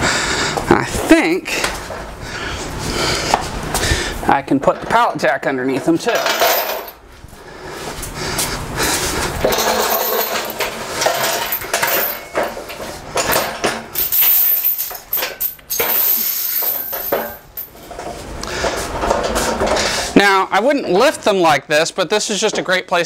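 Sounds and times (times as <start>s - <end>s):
pallet jack clattering on concrete: 9.4s - 13.9s
metal forks and wheels clinking: 9.4s - 18.1s.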